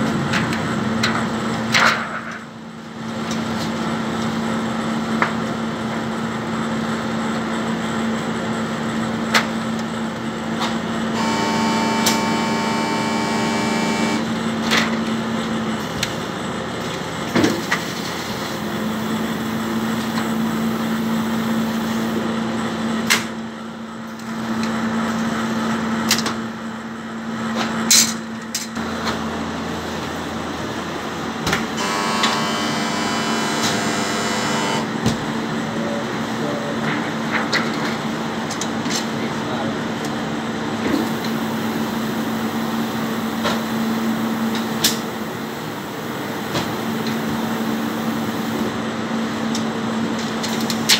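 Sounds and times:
printing press humming: 0:00.0 - 0:27.8, 0:28.8 - 0:50.9
high machine whine: 0:06.6 - 0:22.8, 0:28.8 - 0:36.5, 0:39.5 - 0:50.9.

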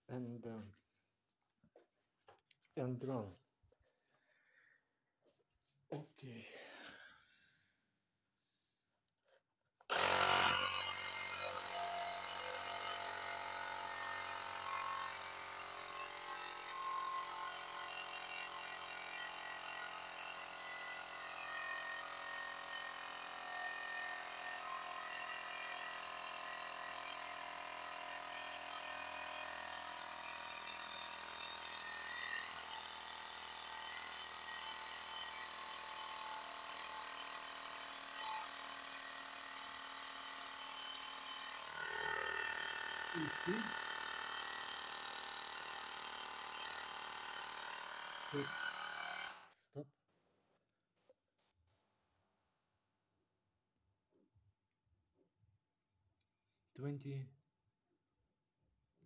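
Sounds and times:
portable tyre compressor running: 0:09.9 - 0:21.4, 0:22.0 - 0:49.5.

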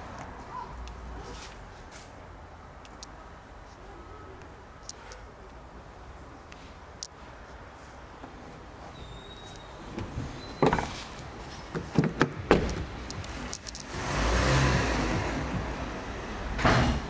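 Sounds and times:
car door thump: 0:11.7 - 0:13.0
car door clicks and knocks: 0:11.7 - 0:13.6
rumbling noise: 0:12.3 - 0:17.0.

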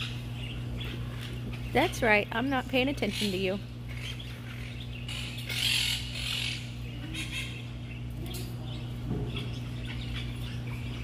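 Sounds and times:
steady low hum: 0:00.0 - 0:11.0
parrot squawking: 0:03.0 - 0:08.1, 0:08.7 - 0:11.0.

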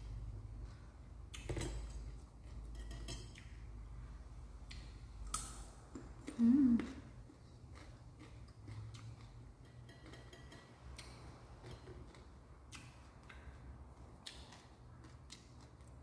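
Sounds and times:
faint ticks and scraping in metal bowl: 0:01.5 - 0:03.5, 0:09.6 - 0:12.2.

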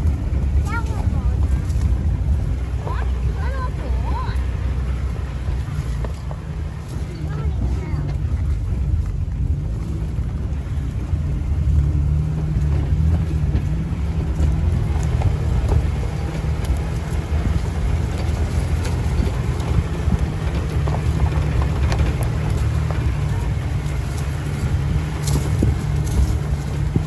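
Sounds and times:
vehicle engine drone: 0:00.0 - 0:27.0.

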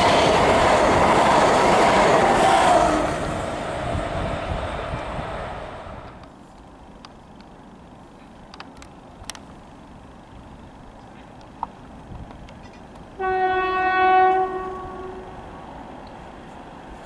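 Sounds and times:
train horn: 0:02.3 - 0:03.2, 0:13.2 - 0:15.4
small clicks: 0:08.2 - 0:09.5.

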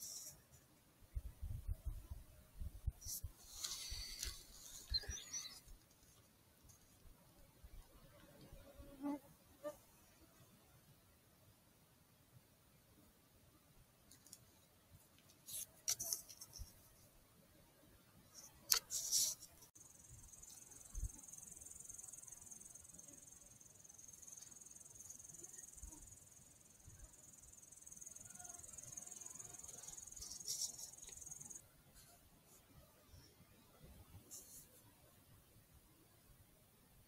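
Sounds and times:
insects chirring: 0:19.0 - 0:31.6.

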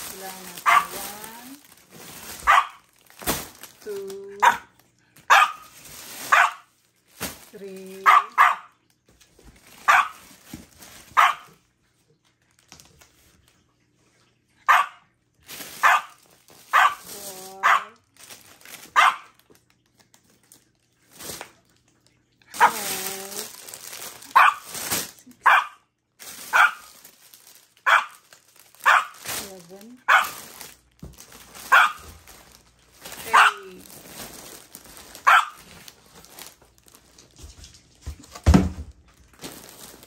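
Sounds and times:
plastic packaging crinkling: 0:00.0 - 0:13.7, 0:15.3 - 0:40.0
dog barking: 0:00.6 - 0:01.0, 0:02.4 - 0:02.8, 0:04.4 - 0:04.7, 0:05.3 - 0:06.7, 0:08.0 - 0:08.8, 0:09.9 - 0:10.3, 0:11.1 - 0:11.6, 0:14.6 - 0:15.1, 0:15.8 - 0:18.0, 0:18.9 - 0:19.4, 0:24.3 - 0:24.7, 0:25.4 - 0:25.8, 0:26.5 - 0:26.9, 0:27.8 - 0:28.2, 0:28.8 - 0:29.2, 0:30.0 - 0:30.5, 0:31.6 - 0:32.1, 0:33.2 - 0:33.8, 0:35.2 - 0:35.6.

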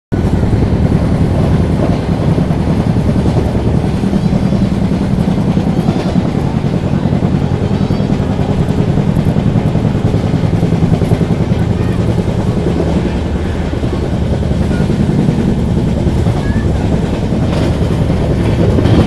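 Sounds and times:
train wheels rumbling on rail: 0:00.1 - 0:19.0.

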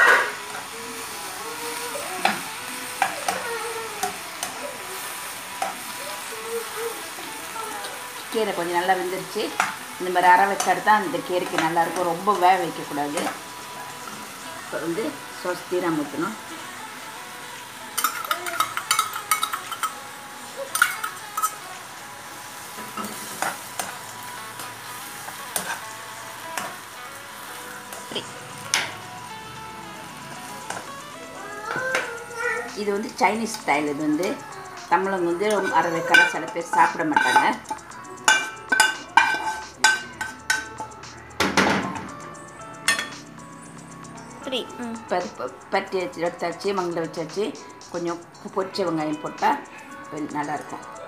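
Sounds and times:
greens sizzling in a hot pan: 0:00.0 - 0:43.0
spatula clicking against pan: 0:18.0 - 0:20.0
spatula scraping a wok: 0:22.6 - 0:29.0, 0:35.3 - 0:41.0.

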